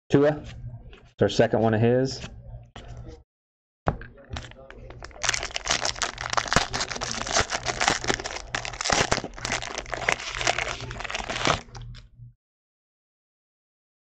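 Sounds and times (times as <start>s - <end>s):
foil wrapper crinkling and tearing: 4.4s - 12.0s.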